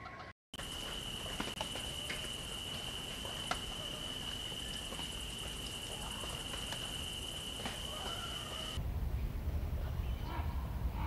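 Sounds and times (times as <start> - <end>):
high-pitched insect drone: 0.6 - 8.8.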